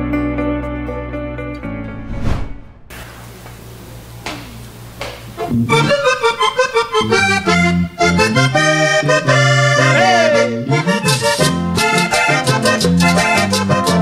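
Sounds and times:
accordion fast runs: 5.7 - 14.0.

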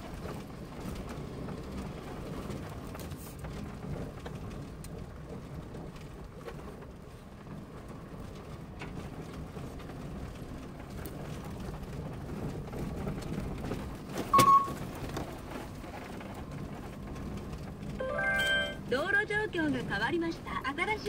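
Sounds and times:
car cabin rumble: 7.4 - 18.0
short loud beep: 14.4 - 14.8, 18.0 - 18.8.

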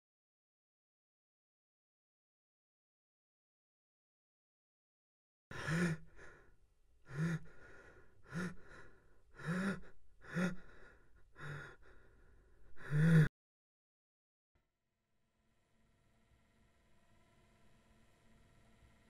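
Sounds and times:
man gasping for breath: 5.5 - 13.3.

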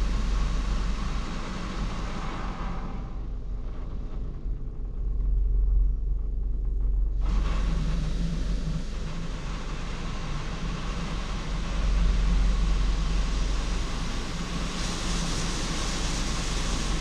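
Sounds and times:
water spray hissing on car: 0.0 - 3.2, 7.3 - 17.0
car wash low rumble: 0.0 - 17.0.

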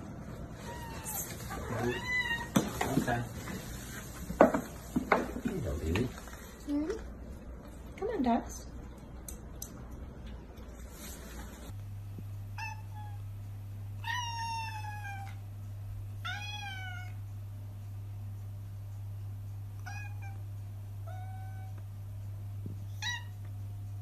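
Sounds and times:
low steady hum: 0.0 - 24.0
cat meowing: 0.6 - 2.6, 14.0 - 15.4, 16.2 - 17.2, 19.8 - 20.4.

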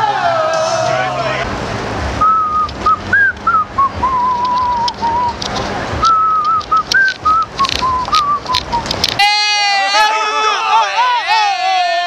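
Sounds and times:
street noise: 0.0 - 12.0
person whistling a tune: 2.2 - 5.4, 6.0 - 9.0
short clicks: 4.3 - 9.2.

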